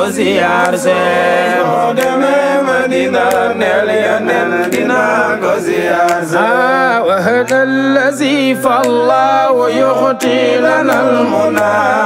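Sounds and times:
man singing devotional chant: 0.0s - 12.0s.

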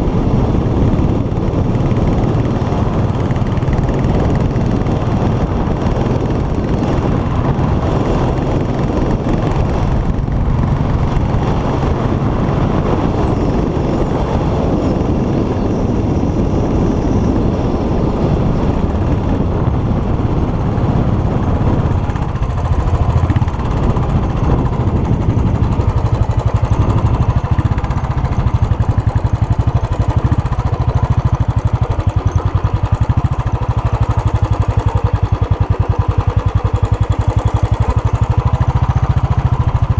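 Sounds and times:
motorcycle engine running: 0.0s - 39.9s
wind and road noise: 0.0s - 39.9s.

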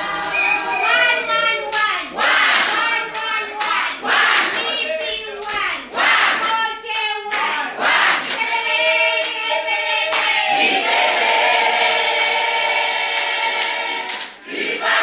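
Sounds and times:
group of people singing: 0.0s - 15.0s
hand claps: 1.7s - 5.7s, 6.3s - 8.6s, 10.1s - 11.4s, 13.1s - 14.4s.

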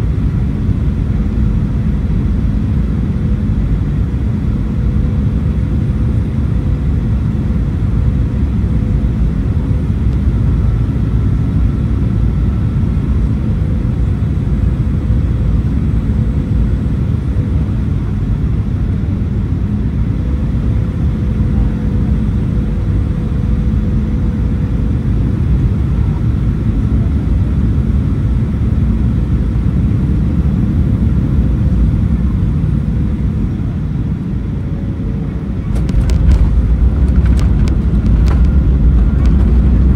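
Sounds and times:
airplane cabin rumble: 0.0s - 39.9s
faint steady hum: 0.0s - 39.9s.

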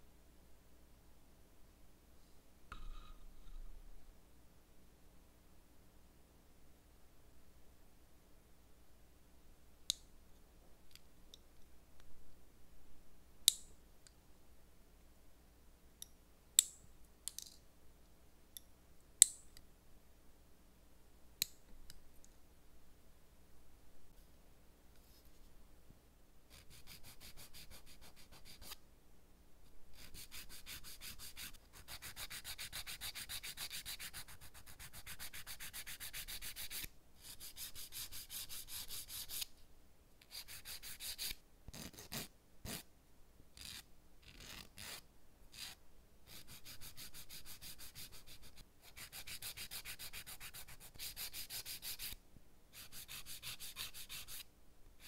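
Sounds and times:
nail file rubbing a nail: 26.5s - 28.8s, 29.9s - 39.5s, 40.2s - 42.9s, 43.6s - 52.2s, 52.8s - 54.5s.

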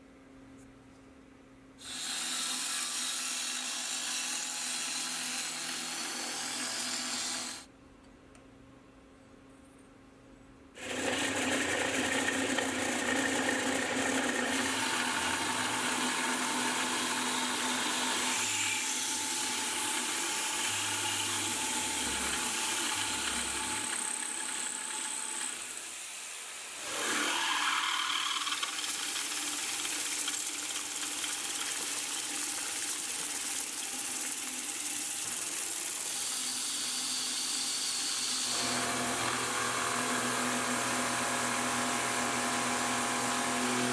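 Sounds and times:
milling machine cutting metal: 10.8s - 43.9s.

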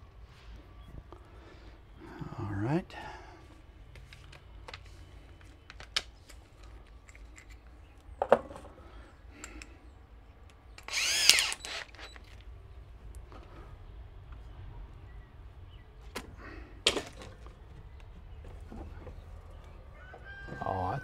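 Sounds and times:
power drill burst: 10.8s - 12.3s.

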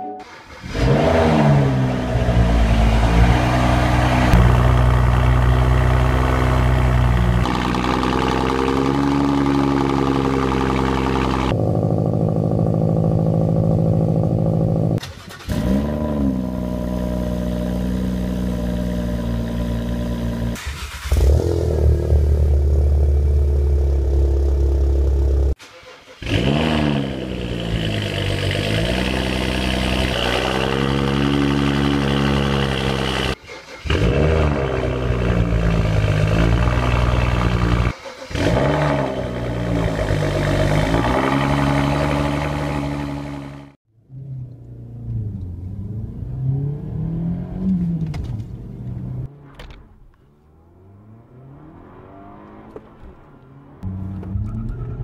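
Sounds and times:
car engines idling and revving: 0.2s - 55.0s
car engine idling with deep drone: 1.6s - 15.0s, 21.2s - 25.6s.

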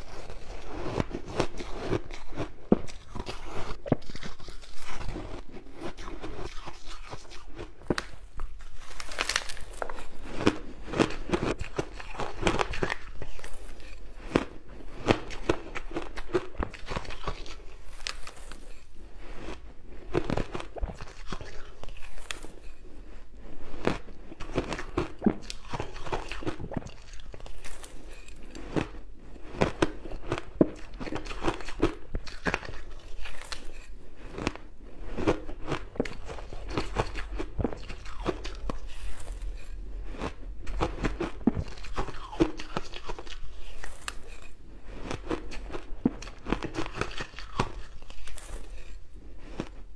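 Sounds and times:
crunching shaved ice: 0.0s - 18.8s.

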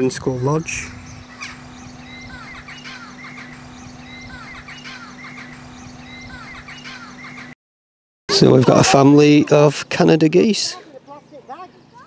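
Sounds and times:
steady low hum: 0.0s - 7.6s
goslings peeping: 0.3s - 7.6s.

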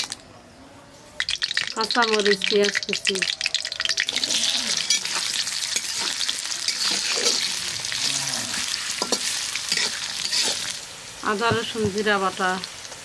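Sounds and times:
onions sizzling in oil: 1.2s - 13.0s
metal spatula scraping pan: 4.2s - 10.8s.

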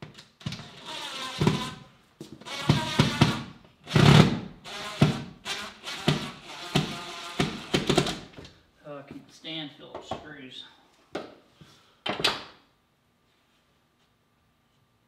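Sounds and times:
cordless drill driving screws: 0.4s - 8.2s.

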